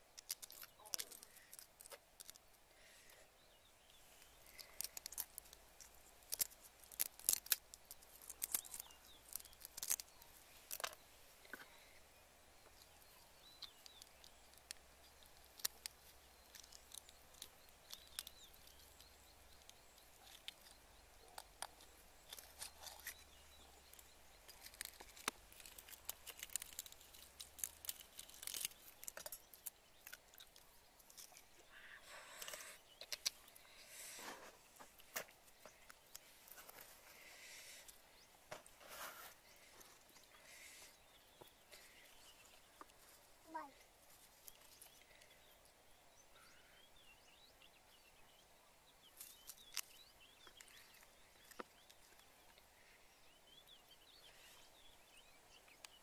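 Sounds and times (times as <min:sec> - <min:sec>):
eggshells crackling: 0:00.0 - 0:03.0, 0:03.8 - 0:11.8, 0:12.6 - 0:34.1.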